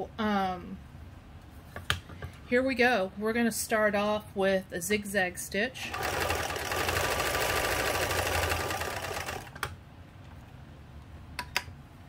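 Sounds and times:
sewing machine running: 5.9s - 9.7s.

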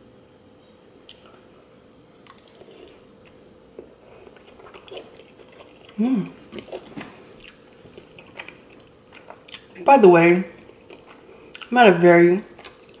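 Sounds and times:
person chewing: 1.0s - 9.8s, 10.6s - 11.8s, 12.5s - 13.0s
person humming: 6.0s - 6.4s.

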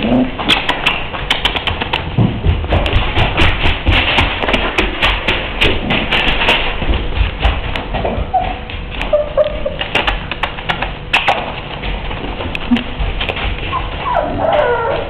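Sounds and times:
taps scratches and rustling: 0.0s - 15.0s
puppies whimpering: 8.2s - 10.0s, 13.6s - 15.0s.

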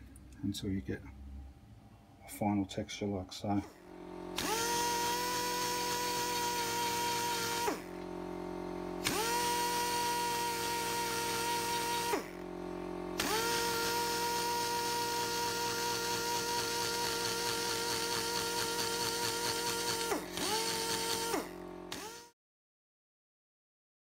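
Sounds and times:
steady low hum: 0.0s - 21.7s
air die grinder whining: 3.7s - 22.3s.

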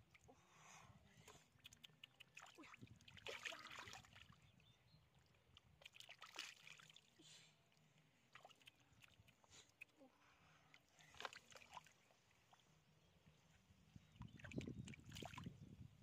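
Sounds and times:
hands splashing in muddy water: 1.3s - 4.4s, 5.5s - 7.1s.

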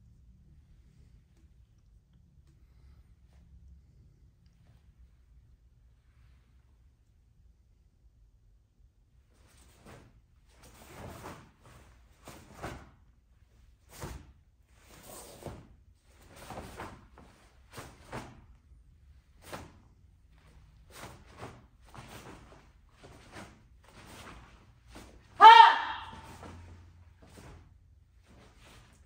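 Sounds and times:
uniform swishing and snapping: 9.4s - 13.1s, 13.7s - 18.6s, 19.2s - 25.4s, 26.1s - 29.0s.

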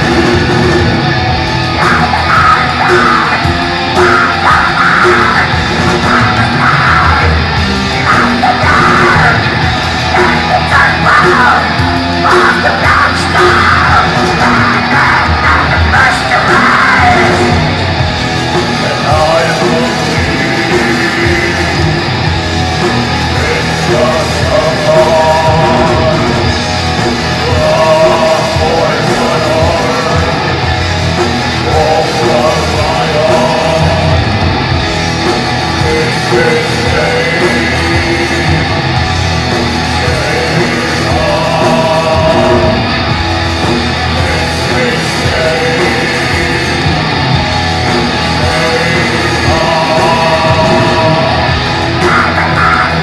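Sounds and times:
black metal band playing: 0.0s - 53.0s
screamed vocals: 1.6s - 18.0s, 48.0s - 53.0s.

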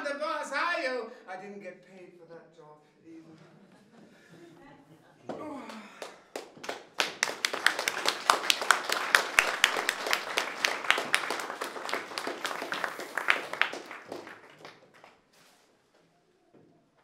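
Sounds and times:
audience applauding: 5.7s - 15.3s.

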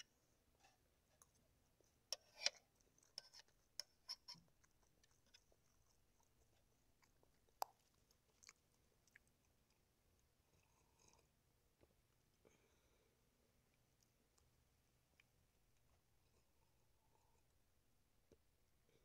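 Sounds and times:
chewing: 0.6s - 12.6s.

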